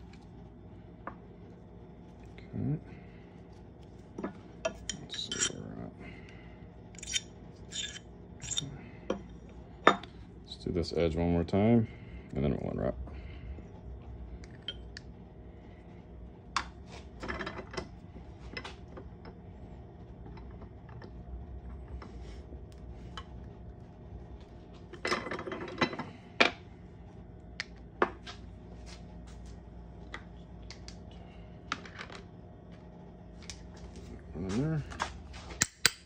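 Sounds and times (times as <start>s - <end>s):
metal parts clinking on bench: 4.6s - 5.6s, 7.0s - 8.7s.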